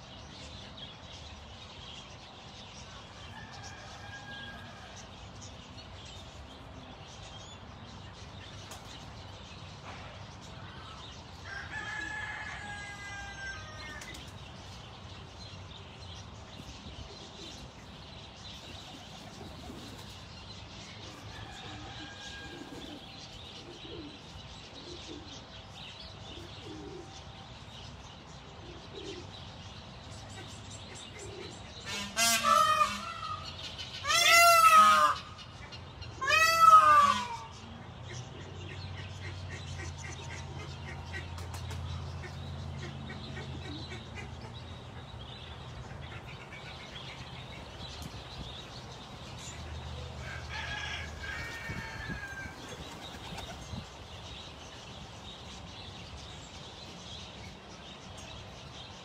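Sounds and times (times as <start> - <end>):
rooster crowing: 3.3 - 5.1, 11.4 - 14.0, 21.3 - 23.0, 50.2 - 53.0.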